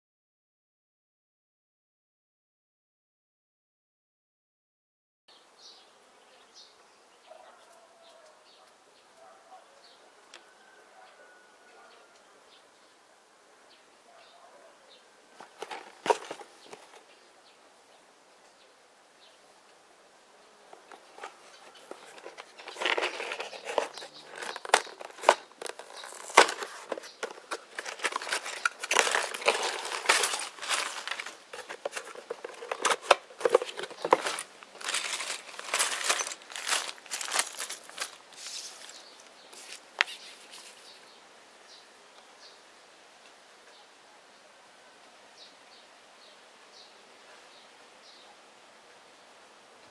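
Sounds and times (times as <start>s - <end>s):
cardboard box handled: 15.4s - 17.0s, 20.8s - 39.0s
plastic bags crinkling: 15.4s - 17.0s, 20.8s - 40.8s.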